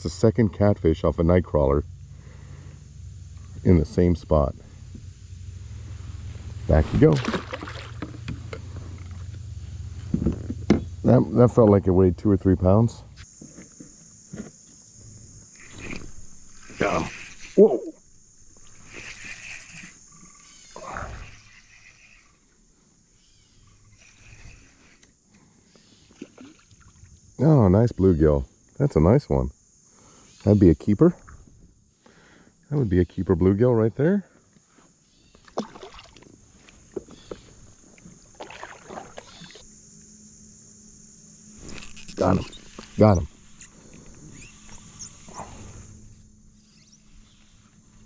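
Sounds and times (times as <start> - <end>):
paddle strokes in water: 6.8 - 9.2, 38.3 - 39.6
fish splashing into water: 6.9 - 8.1, 35.5 - 36.3, 38.3 - 39.6
frog croaking: 15.5 - 22.6, 23.2 - 25.1, 37.0 - 39.7.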